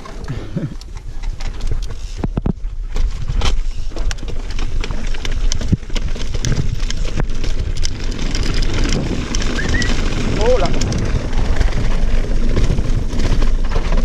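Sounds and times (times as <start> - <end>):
mountain bike rattling over rocks: 0.0 - 14.0
low rumble: 4.3 - 14.0.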